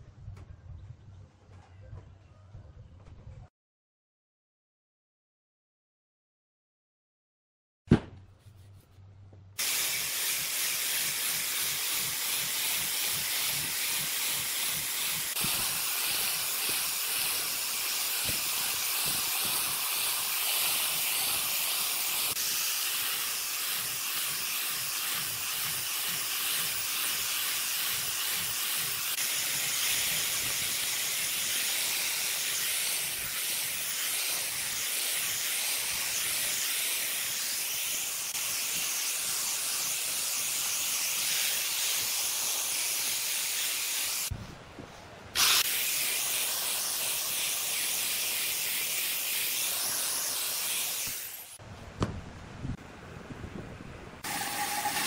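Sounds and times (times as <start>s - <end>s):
angle grinder sanding wood: 9.6s - 44.4s, 45.4s - 51.6s, 54.2s - 55.0s.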